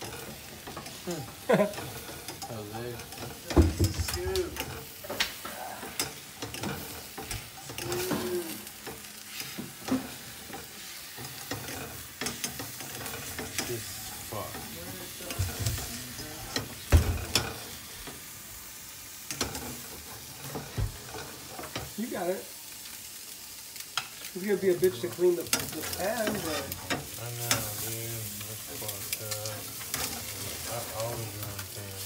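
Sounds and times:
metal spatula scraping a pan: 0.0s - 3.5s, 4.1s - 17.9s, 24.0s - 31.8s
eggs sizzling in a frying pan: 0.0s - 32.0s
knock on a pan: 3.5s - 4.2s, 16.9s - 17.4s.

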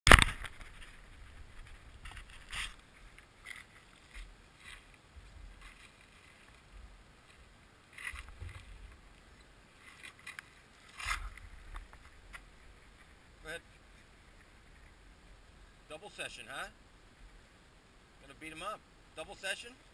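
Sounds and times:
faint rustling or crunching: 0.1s - 15.8s.

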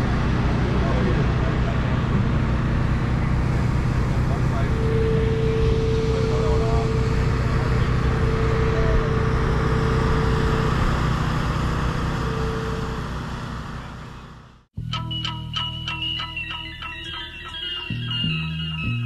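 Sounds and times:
faint voices: 0.0s - 10.2s
held whine: 0.0s - 19.0s
low engine-like drone: 0.0s - 19.0s.

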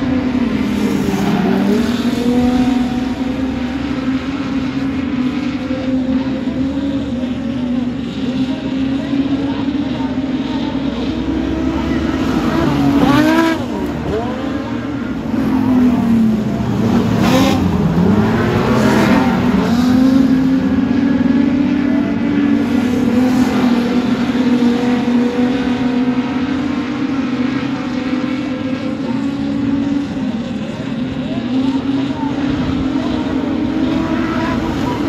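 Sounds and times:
race car engines droning: 0.0s - 35.0s
race cars passing by: 0.0s - 35.0s.

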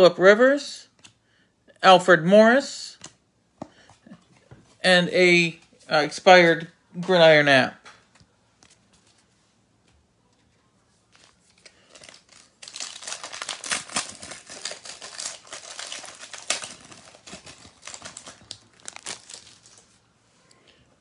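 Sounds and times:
plastic wrapper tearing and crinkling: 11.1s - 20.0s.

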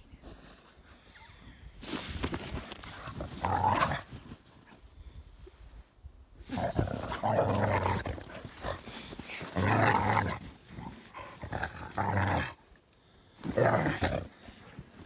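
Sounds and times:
dogs growling: 6.4s - 12.7s, 13.4s - 14.7s.

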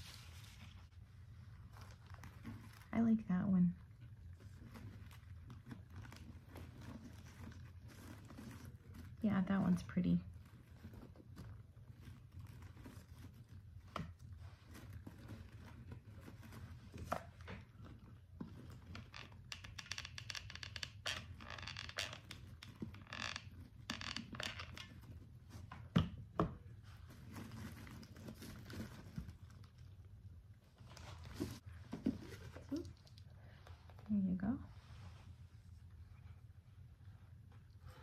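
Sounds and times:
paper rustling and crinkling: 0.0s - 19.4s, 26.6s - 34.1s.

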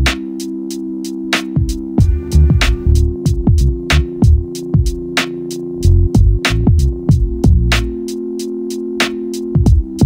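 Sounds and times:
hi-hat ticks: 0.0s - 10.0s
held synth chord: 0.2s - 9.6s
deep kick drum: 1.6s - 5.0s, 5.8s - 7.9s, 9.6s - 10.0s.

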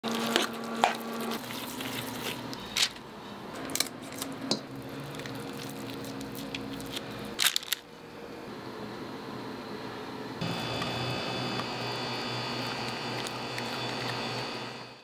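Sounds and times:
hands squishing raw meat: 4.9s - 7.6s.

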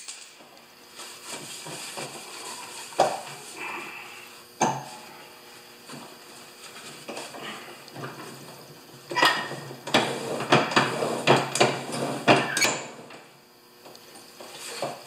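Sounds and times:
rag rubbing on metal: 1.4s - 3.7s.

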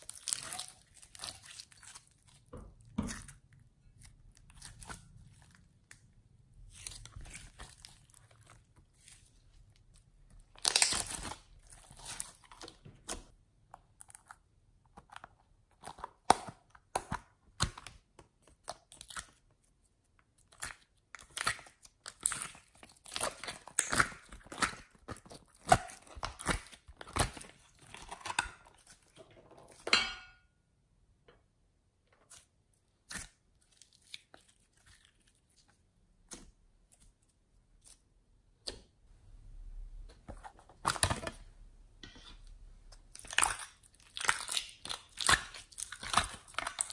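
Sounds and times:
slime squeezed and stretched by hand: 0.0s - 2.5s.

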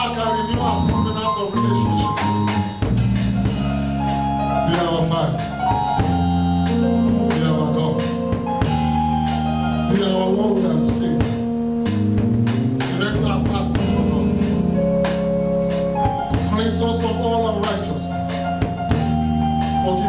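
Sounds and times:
man singing into microphone: 0.0s - 2.2s
drum kit steady beat: 0.0s - 20.0s
sustained held chords: 0.0s - 20.0s.

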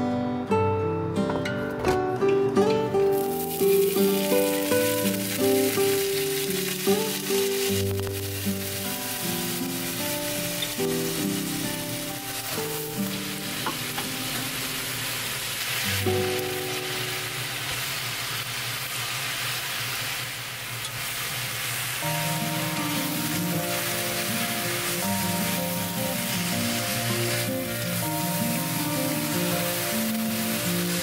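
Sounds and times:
soft background music: 0.0s - 18.1s, 21.9s - 31.0s
vegetables sizzling in oil: 3.0s - 31.0s.

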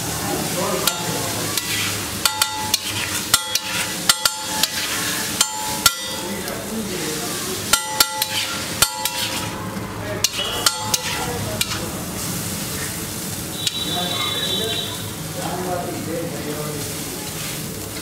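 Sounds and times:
food sizzling: 0.0s - 18.0s
metal spatula clanking on griddle: 0.8s - 6.6s, 7.6s - 9.6s, 10.2s - 11.9s.

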